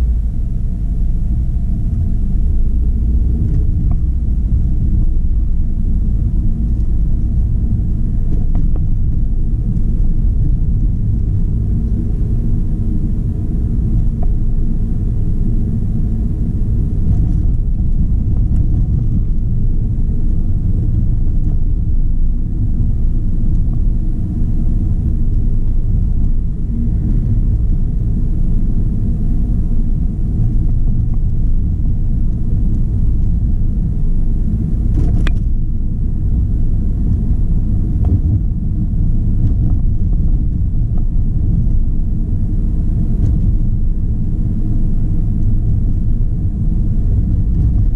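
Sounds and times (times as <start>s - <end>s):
car driving heard from inside: 0.0s - 47.9s.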